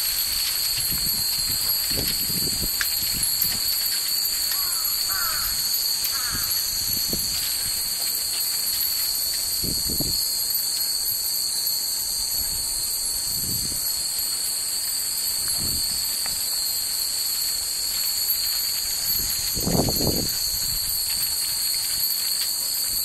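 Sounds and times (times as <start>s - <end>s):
cicadas droning: 0.0s - 23.0s
wind chimes tinkling: 0.0s - 23.0s.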